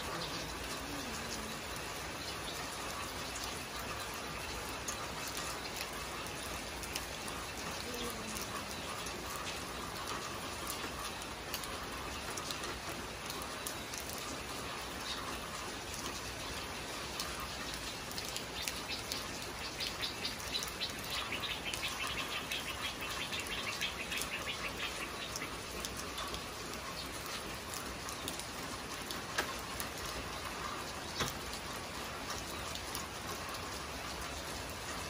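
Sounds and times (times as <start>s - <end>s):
steady rain on roof: 0.0s - 35.0s.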